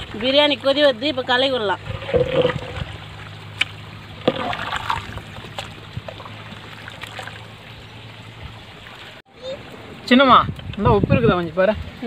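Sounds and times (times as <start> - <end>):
liquid sloshing and bubbling: 1.3 - 9.2.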